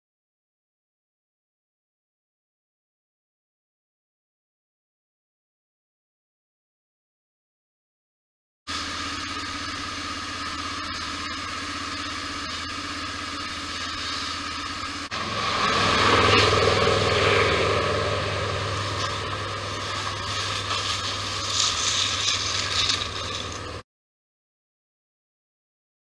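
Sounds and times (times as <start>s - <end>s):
engine hum: 8.7s - 23.8s
rough engine noise: 8.7s - 23.8s.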